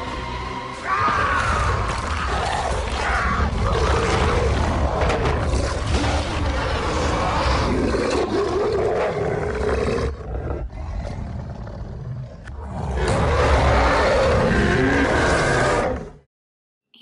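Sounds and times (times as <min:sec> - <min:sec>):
creature roaring and snarling: 0:00.8 - 0:16.3.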